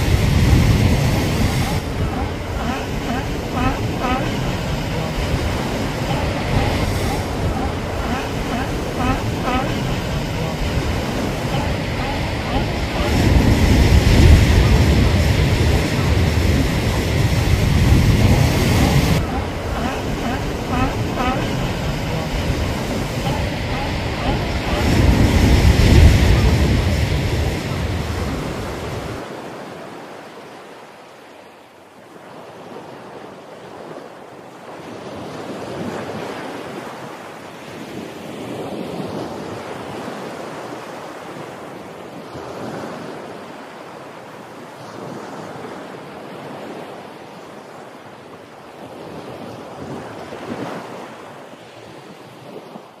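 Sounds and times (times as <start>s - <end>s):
surf breaking on rocks: 0.0s - 29.5s.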